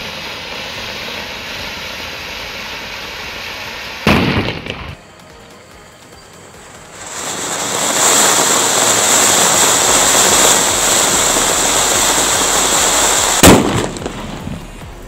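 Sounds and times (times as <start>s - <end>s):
ground fountain firework hissing: 0.0s - 15.0s
sharp bang: 4.0s - 5.0s, 13.3s - 15.0s.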